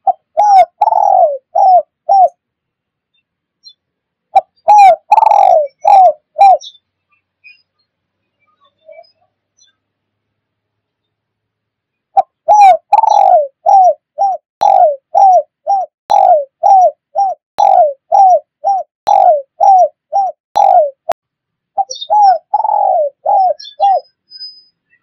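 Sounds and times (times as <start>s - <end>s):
dove cooing: 0.0s - 2.4s, 4.3s - 6.7s, 12.2s - 21.2s, 21.8s - 24.0s.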